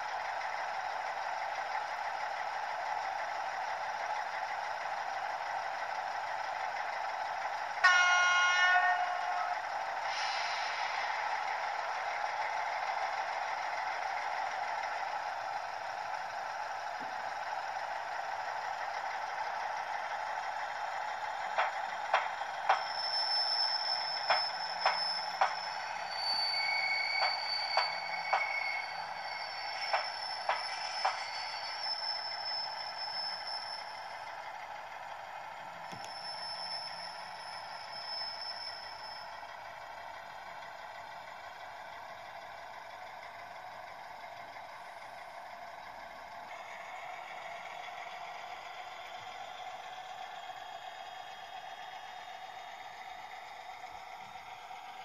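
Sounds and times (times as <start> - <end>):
diesel engine through small speaker: 0.0 - 26.7, 27.4 - 55.0
two-tone horn blast: 7.8 - 9.4.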